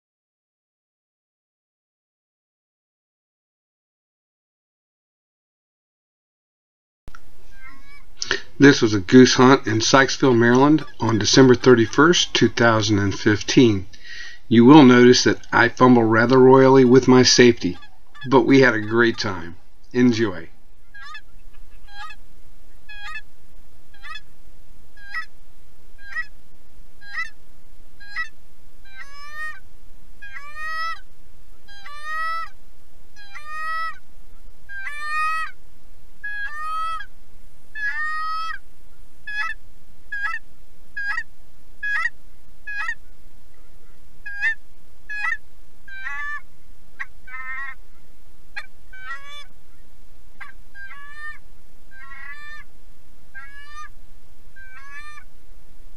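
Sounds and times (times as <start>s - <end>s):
goose honking: 7.7s - 22.2s, 22.9s - 23.3s, 24.0s - 24.3s, 25.0s - 25.3s, 26.0s - 26.3s, 27.0s - 27.4s, 28.0s - 28.3s, 30.2s - 31.1s, 31.7s - 32.6s, 33.2s - 34.0s, 34.7s - 35.6s, 36.2s - 37.1s, 39.3s - 40.4s, 41.0s - 43.1s, 43.8s - 46.4s, 47.0s - 47.8s, 48.6s - 49.5s, 50.4s - 52.7s, 53.4s - 53.9s, 54.6s - 55.3s.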